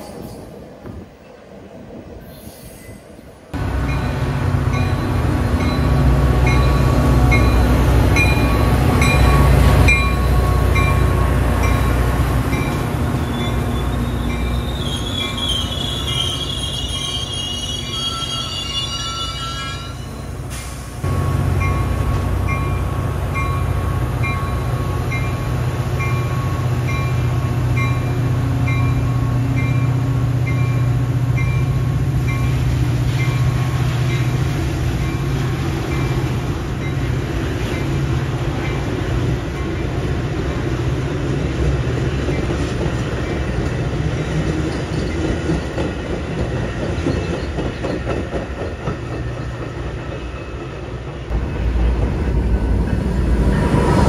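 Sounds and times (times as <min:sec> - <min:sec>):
diesel locomotive engine: 0:00.0 - 0:54.0
train cars rolling past: 0:00.0 - 0:54.0
crossing bell ringing: 0:03.6 - 0:15.4, 0:16.8 - 0:20.3, 0:21.1 - 0:38.0
wheel and brake squeal: 0:13.2 - 0:20.8.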